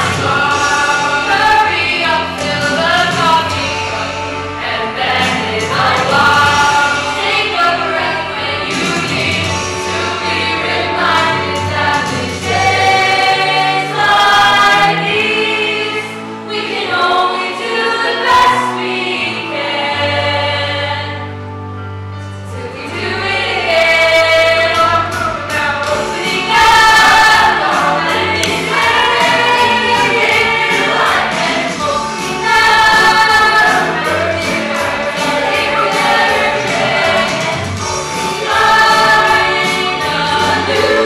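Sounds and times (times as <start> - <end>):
group singing in harmony: 0.0 - 21.3, 22.5 - 41.0
lead singers at microphones: 22.6 - 41.0.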